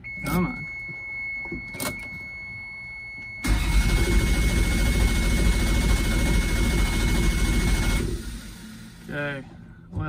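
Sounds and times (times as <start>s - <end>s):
starter motor cranking engine: 3.4s - 8.8s.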